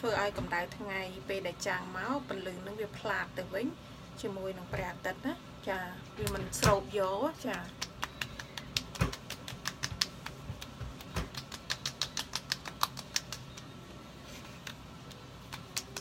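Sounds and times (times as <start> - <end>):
palms patting lotion on skin: 7.5 - 13.7, 14.5 - 16.0.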